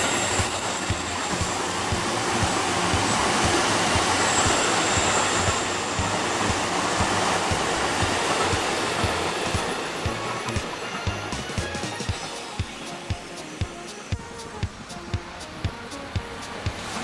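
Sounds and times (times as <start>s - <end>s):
train wheels rushing on rail: 0.0s - 17.0s.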